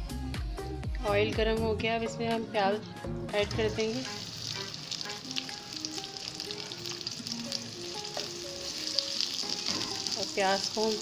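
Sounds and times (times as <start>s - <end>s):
soft background music: 0.0s - 11.0s
onions sizzling in hot oil: 3.6s - 11.0s.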